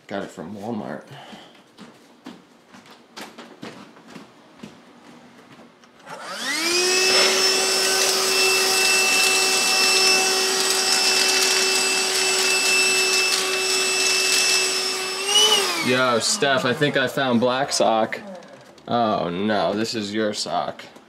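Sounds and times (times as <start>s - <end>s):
stick vacuum motor whine: 6.0s - 18.9s
vacuum sucking up dry pellets: 6.4s - 18.2s.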